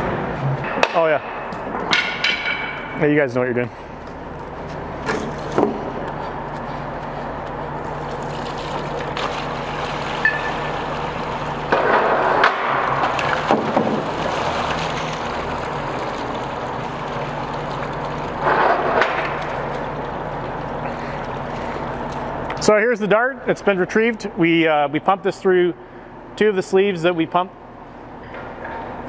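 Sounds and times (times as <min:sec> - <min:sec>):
low steady hum: 0:00.0 - 0:29.0
water pouring into a tray: 0:08.1 - 0:11.6, 0:12.8 - 0:18.4.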